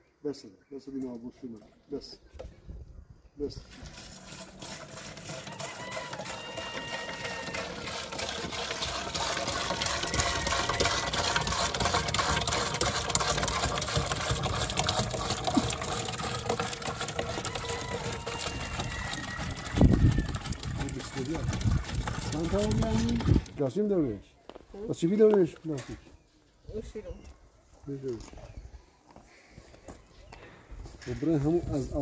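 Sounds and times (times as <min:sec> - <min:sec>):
liquid spraying: 0:03.7 - 0:17.3
motorized sprayer pump running: 0:03.7 - 0:23.6.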